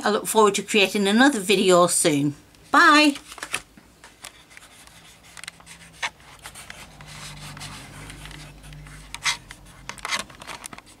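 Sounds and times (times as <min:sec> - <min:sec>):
rubbing and rustling: 0:03.1 - 0:11.0.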